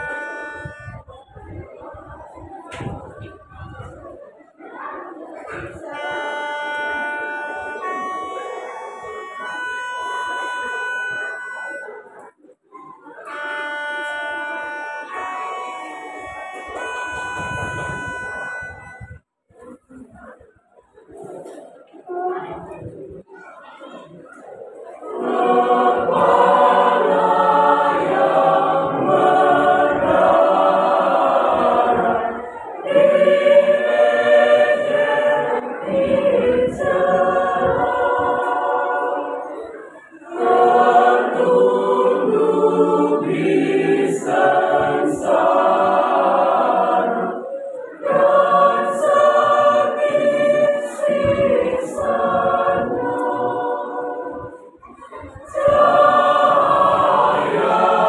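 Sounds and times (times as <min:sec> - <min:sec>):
mixed choir singing: 0:00.0 - 0:12.4, 0:24.0 - 0:58.0.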